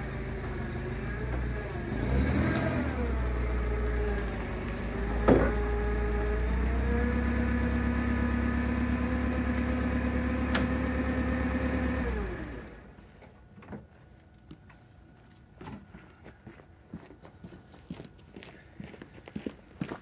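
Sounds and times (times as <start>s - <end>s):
forklift engine idling: 0.0s - 13.1s.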